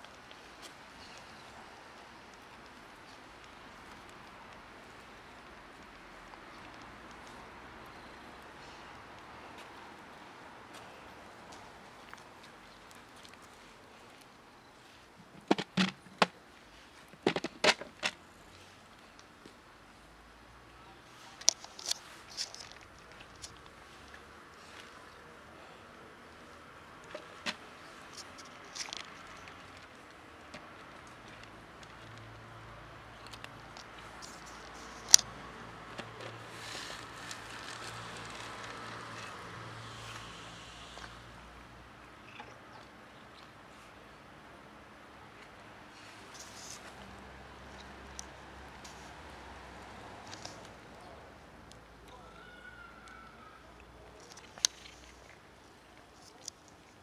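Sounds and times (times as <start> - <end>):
cat crunching dry kibble: 28.1 - 29.8.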